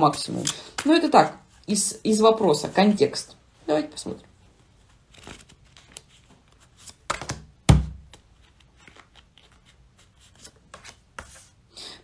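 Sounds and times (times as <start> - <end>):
cards clicking and rustling: 5.1 - 11.4.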